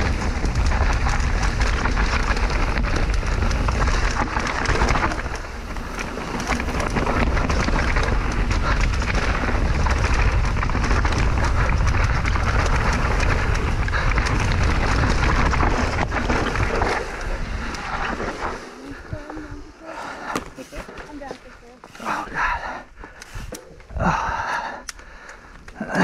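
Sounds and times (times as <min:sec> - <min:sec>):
wind on microphone: 0:00.0 - 0:21.2
deep steady rumble: 0:00.0 - 0:25.9
bike rattling and clattering: 0:00.0 - 0:26.0
tyres rolling on loose dirt: 0:00.0 - 0:26.0.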